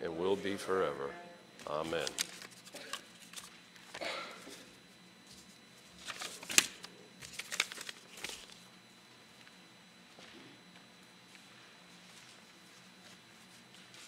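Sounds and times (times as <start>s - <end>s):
paper rustling: 1.8s - 4.0s, 5.2s - 8.6s, 12.0s - 14.0s.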